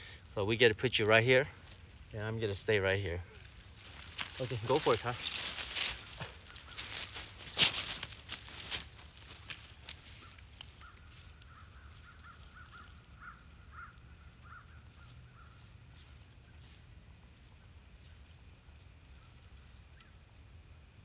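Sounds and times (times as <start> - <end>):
footsteps crunching in dry leaves: 1.5 - 2.2, 3.3 - 19.9
distant animal harsh calls: 3.3 - 8.0, 10.1 - 15.7.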